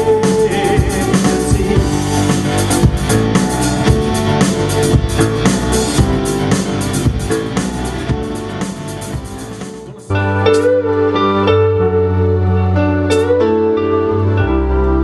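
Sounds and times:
drum kit: 0:00.0 - 0:11.5, 0:13.1 - 0:13.6
bass guitar: 0:00.0 - 0:15.0
electric guitar: 0:00.0 - 0:15.0.

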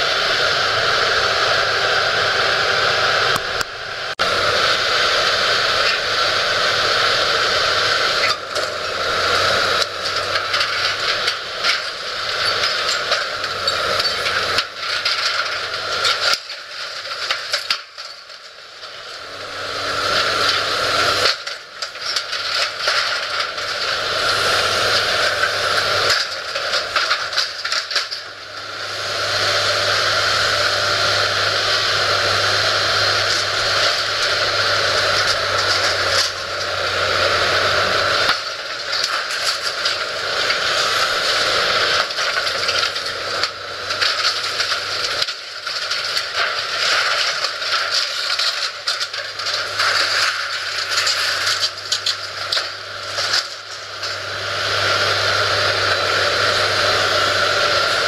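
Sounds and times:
excavator engine and hydraulics: 0:00.0 - 0:58.0
metal crunching and scraping: 0:00.0 - 0:58.0.

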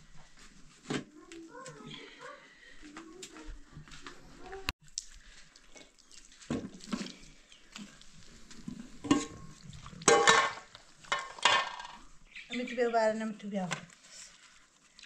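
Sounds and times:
metal pots and lids clinking: 0:09.0 - 0:12.0.

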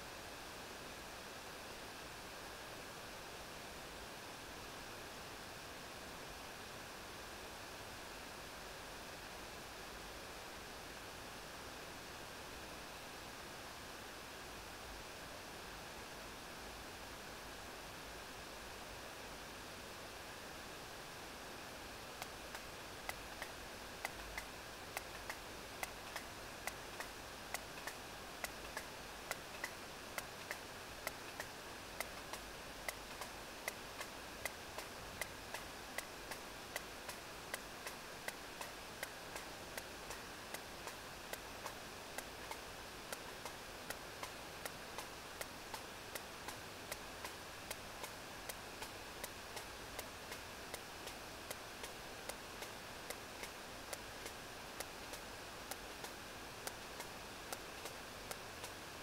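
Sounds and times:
steady background hiss: 0:00.0 - 0:59.0.

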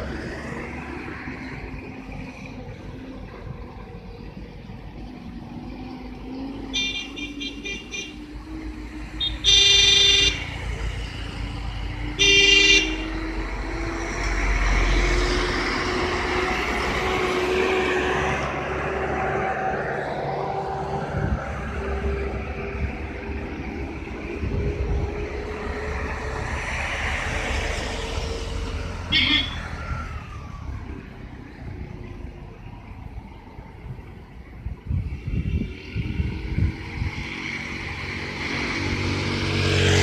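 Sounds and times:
vehicle horn blasts: 0:06.8 - 0:08.2, 0:09.2 - 0:10.5, 0:12.2 - 0:13.1, 0:29.1 - 0:29.6.

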